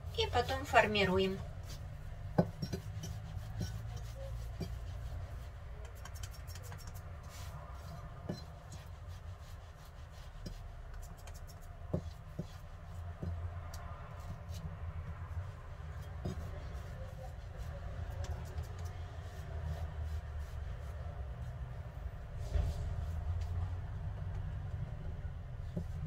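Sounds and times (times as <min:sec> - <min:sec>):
knife scraping: 0:01.6 - 0:12.6.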